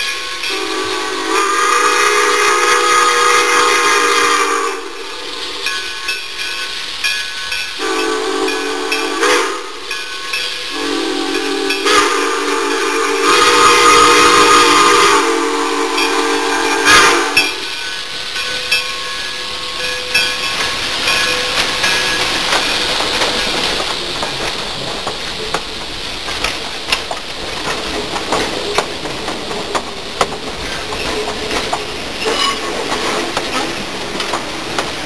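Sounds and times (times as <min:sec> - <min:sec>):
steam locomotive whistle: 0:00.0 - 0:06.2, 0:07.8 - 0:20.2, 0:32.2 - 0:32.7
train rumble passing: 0:00.0 - 0:35.0
wheels clicking on rails: 0:17.4 - 0:35.0.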